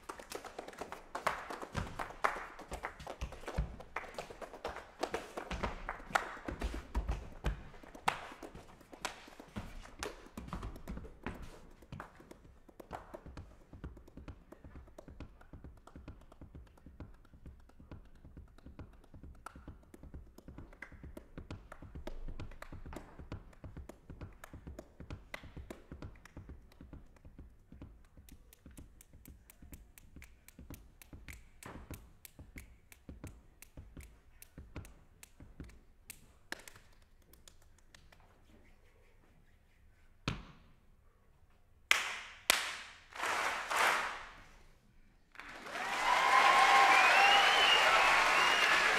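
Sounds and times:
soft hand percussion taps: 0:06.5 - 0:38.7.

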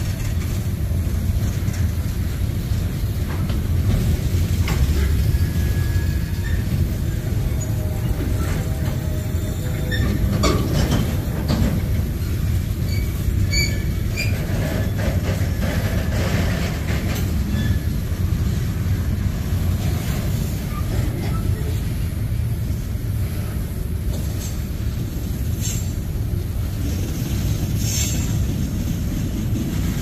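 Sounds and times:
freight train rumbling on rails: 0:00.0 - 0:30.0
train cars clanking: 0:00.0 - 0:30.0
high wheel squeals: 0:04.8 - 0:11.1, 0:12.2 - 0:15.2, 0:17.4 - 0:18.0.

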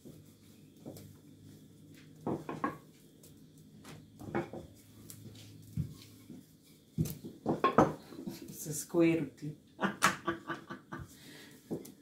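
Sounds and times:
rolling pin rolling dough: 0:00.0 - 0:08.6.

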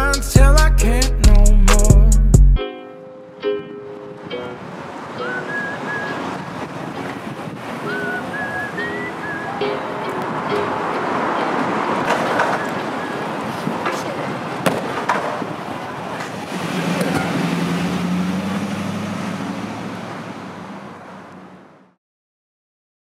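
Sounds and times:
street traffic noise: 0:00.0 - 0:22.0
vehicle engine hum: 0:04.0 - 0:22.0
sharp knocks: 0:14.6 - 0:15.4.

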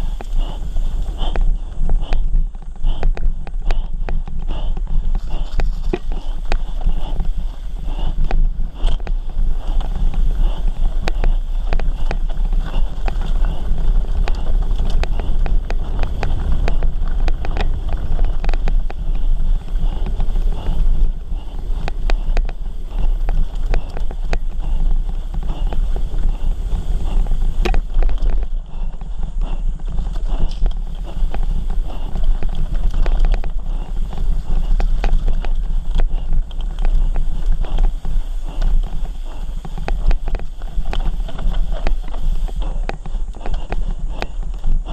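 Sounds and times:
bike rattling over bumps: 0:00.0 - 0:44.9
bike tyres on loose dirt: 0:00.0 - 0:44.9
wind on microphone: 0:00.0 - 0:44.9.

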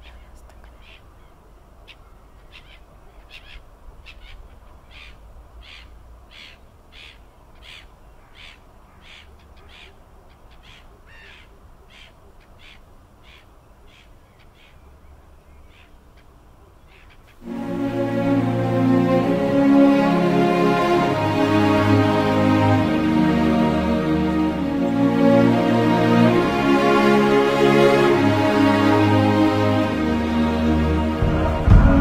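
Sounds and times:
bird raspy calls: 0:00.0 - 0:14.9, 0:15.5 - 0:17.4
wind rumble: 0:29.6 - 0:32.0.

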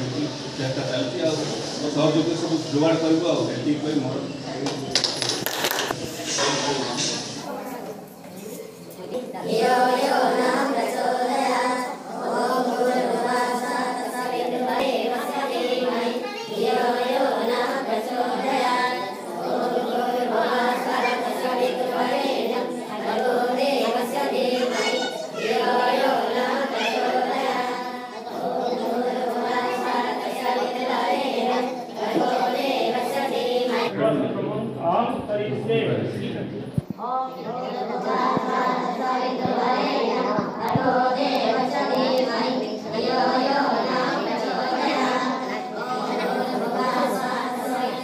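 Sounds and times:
group singing a chant: 0:09.3 - 0:33.9, 0:36.9 - 0:48.0.

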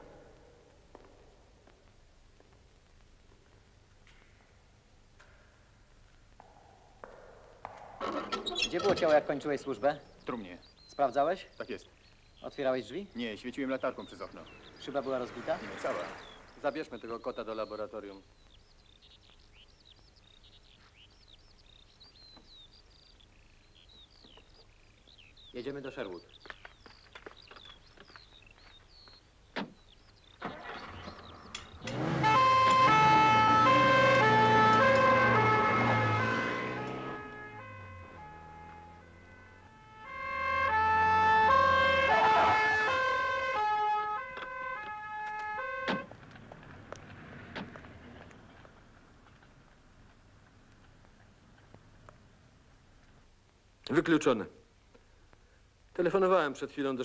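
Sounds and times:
small birds chirping: 0:05.4 - 0:32.0
two-tone siren: 0:31.6 - 0:46.1.

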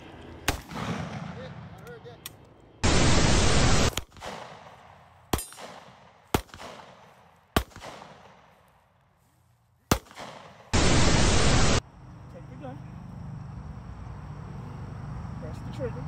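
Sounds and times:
shotgun shots: 0:00.4 - 0:01.8, 0:02.8 - 0:08.5, 0:09.9 - 0:11.8.

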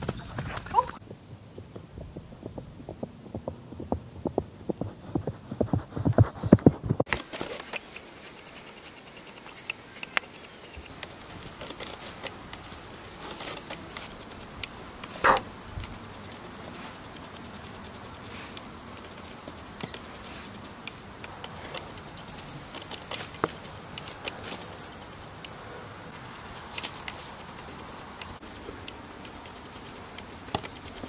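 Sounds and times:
irregular dull thuds: 0:00.0 - 0:07.1.

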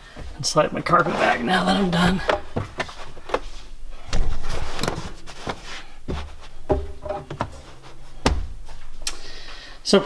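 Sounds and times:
low thumps: 0:01.8 - 0:09.2
knocks and clicks: 0:06.1 - 0:08.6.

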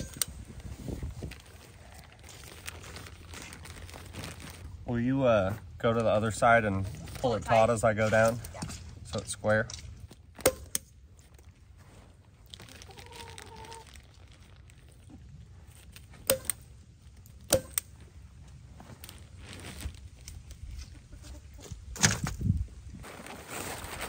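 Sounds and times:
plastic sheeting crinkling: 0:00.0 - 0:05.0, 0:11.1 - 0:16.2, 0:18.0 - 0:20.9, 0:23.0 - 0:24.0.

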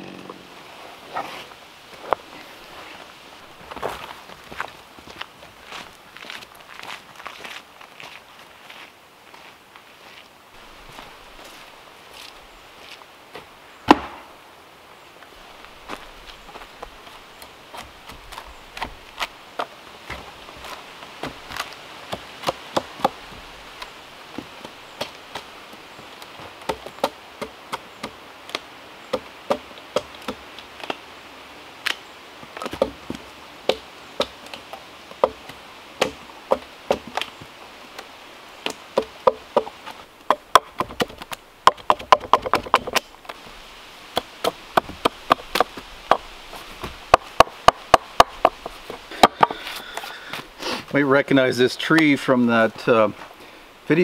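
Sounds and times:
chopping tool striking wood: 0:13.9 - 0:14.3, 0:36.0 - 0:37.2.

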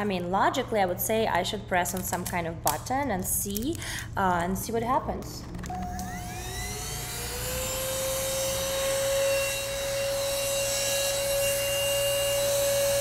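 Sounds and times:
handheld vacuum motor whine: 0:05.4 - 0:13.0.

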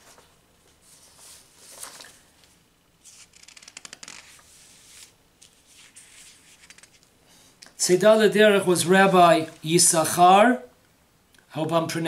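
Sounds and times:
paper pages rustling: 0:00.0 - 0:07.1.

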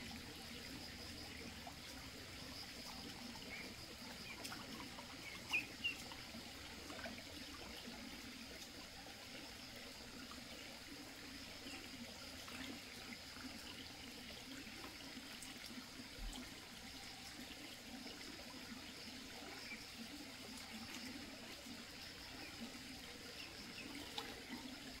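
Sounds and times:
stream water trickling: 0:00.0 - 0:25.0.

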